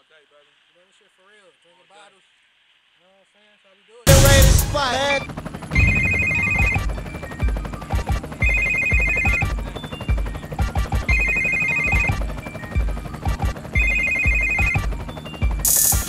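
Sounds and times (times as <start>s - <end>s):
heavy bass hits: 4.1s - 4.8s, 5.8s - 7.1s
cymbal crash: 4.1s - 5.0s, 5.8s - 7.1s
hip-hop beat: 4.1s - 8.4s
trilling telephone ring: 5.8s - 9.9s, 10.7s - 12.7s, 13.3s - 15.4s.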